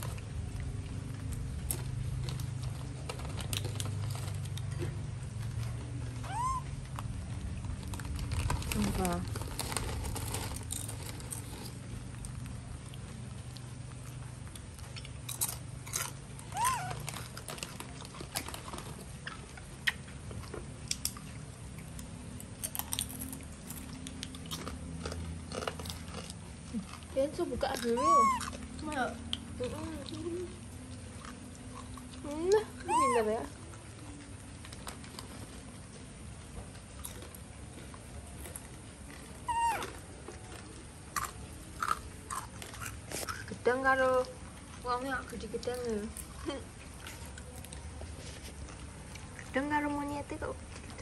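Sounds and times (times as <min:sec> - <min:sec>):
clicks and rustles: 0:00.0 - 0:29.5
monkeys chewing: 0:00.0 - 0:51.0
monkey squeak: 0:06.2 - 0:06.7, 0:16.5 - 0:17.1, 0:27.8 - 0:28.6, 0:32.8 - 0:33.4, 0:39.5 - 0:39.9.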